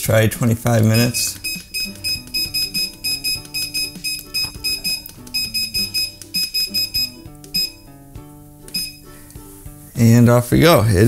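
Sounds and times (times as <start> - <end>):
background music: 0.0 - 11.0
control panel beeping: 0.9 - 7.8, 8.7 - 9.0.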